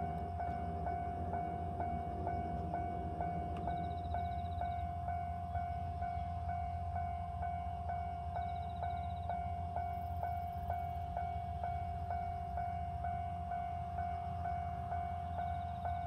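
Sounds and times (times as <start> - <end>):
level crossing warning bell: 0.0 - 16.0
low steady rumble: 0.0 - 16.0.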